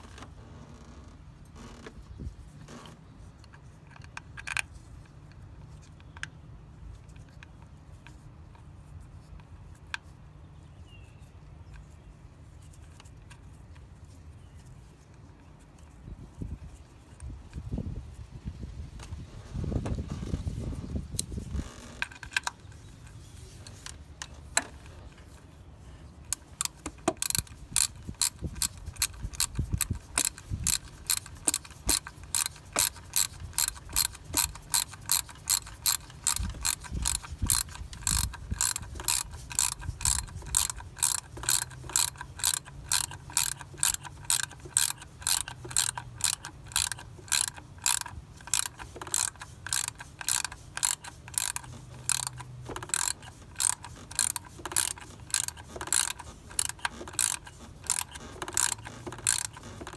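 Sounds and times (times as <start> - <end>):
hand ratchet clicking: 21.0 - 25.4, 26.2 - 59.9.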